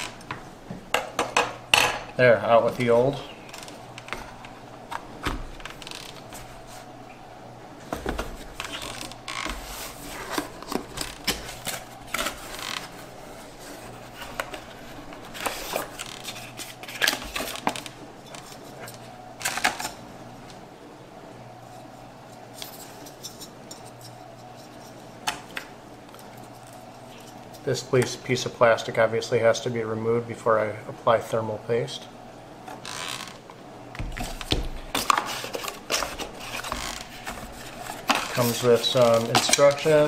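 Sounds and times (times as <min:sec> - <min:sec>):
cardboard and plastic rustling: 0:07.8 - 0:20.0, 0:34.0 - 0:40.0.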